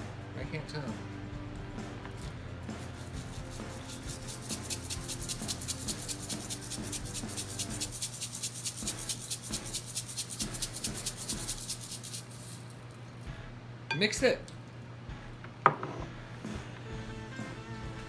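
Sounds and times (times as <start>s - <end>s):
sprinkles rattling in plastic shaker: 2.2s - 12.8s.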